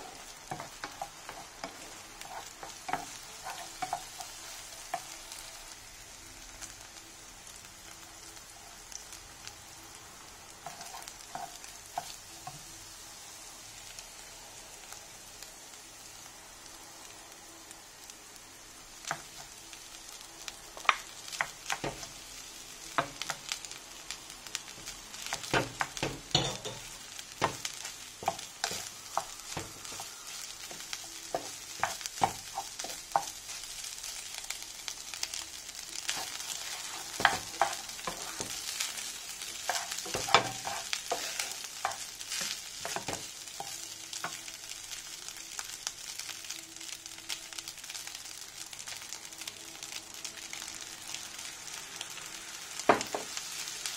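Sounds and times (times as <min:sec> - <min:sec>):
rice sizzling in a frying pan: 0:00.0 - 0:53.9
wooden spatula knocking and scraping pan: 0:20.9 - 0:22.1, 0:25.3 - 0:33.3, 0:36.1 - 0:38.8, 0:39.6 - 0:44.4.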